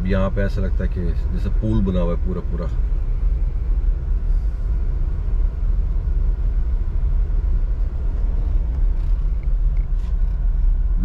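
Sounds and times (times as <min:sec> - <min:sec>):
car engine and tyres rumbling: 0:00.0 - 0:11.0.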